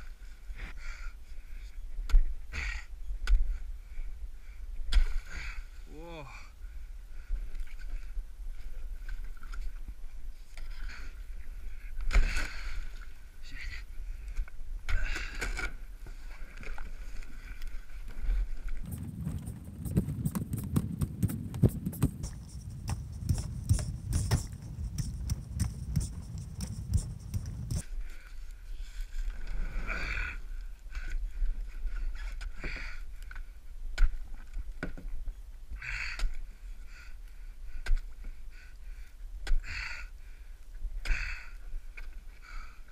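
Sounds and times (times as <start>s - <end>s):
kayak crunching through ice: 15.3s - 27.8s.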